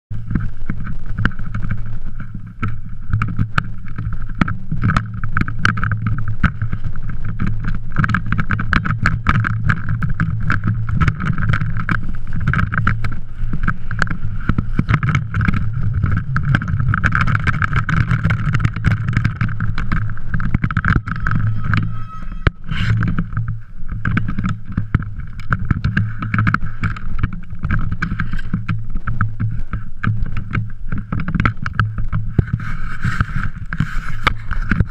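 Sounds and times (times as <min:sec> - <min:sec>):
regular ticks: 0:00.1 - 0:34.9
steady rumble and hum: 0:00.1 - 0:34.9.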